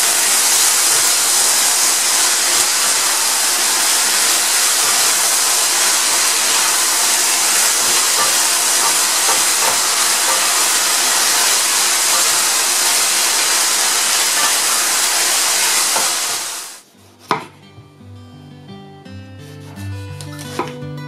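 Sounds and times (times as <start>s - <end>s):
food sizzling in a pan: 0.0s - 16.8s
soft guitar music: 17.1s - 21.0s.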